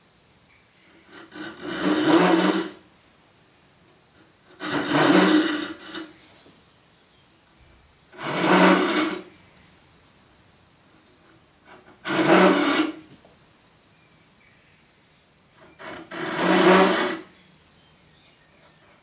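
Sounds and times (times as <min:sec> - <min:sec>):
hand saw cutting wood: 0:01.0 - 0:02.8, 0:04.2 - 0:06.2, 0:08.1 - 0:09.3, 0:11.7 - 0:13.1, 0:15.6 - 0:17.3.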